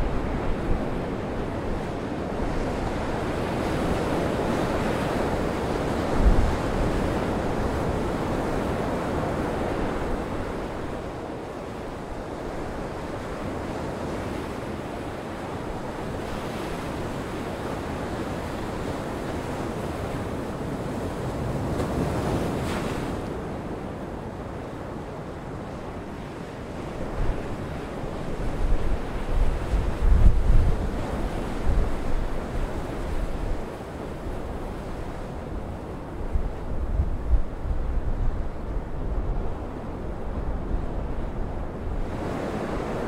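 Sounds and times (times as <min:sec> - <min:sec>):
wind buffeting microphone: 0:00.0 - 0:11.0, 0:26.6 - 0:43.0
gale wind: 0:00.0 - 0:43.0.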